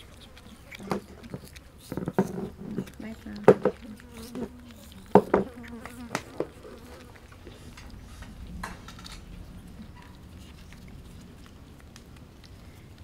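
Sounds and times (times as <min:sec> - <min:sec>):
flying insects buzzing: 0:00.0 - 0:11.4
small clicks and knocks: 0:07.8 - 0:09.3.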